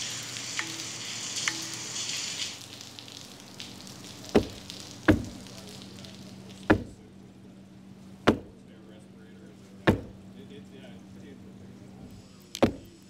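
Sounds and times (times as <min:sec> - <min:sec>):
rain falling: 0:00.0 - 0:13.0
sharp knocks: 0:04.3 - 0:05.5, 0:06.7 - 0:07.0, 0:08.2 - 0:08.6, 0:09.9 - 0:10.2, 0:12.6 - 0:12.9.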